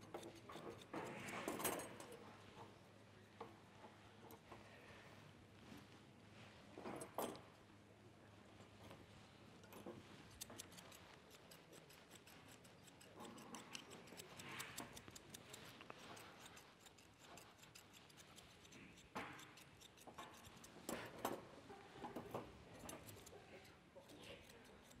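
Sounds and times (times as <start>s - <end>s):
scissors snipping: 10.3s - 21.2s, 22.7s - 25.0s.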